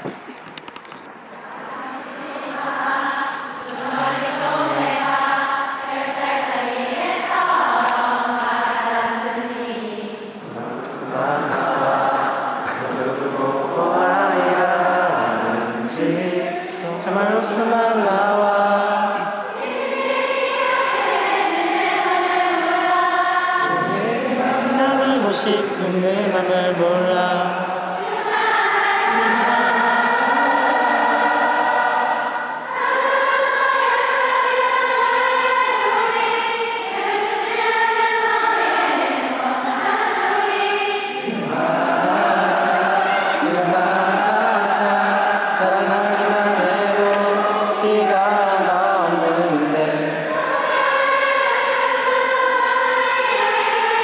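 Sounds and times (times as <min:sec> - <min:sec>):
crowd singing a pop ballad: 0:00.0 - 0:54.0.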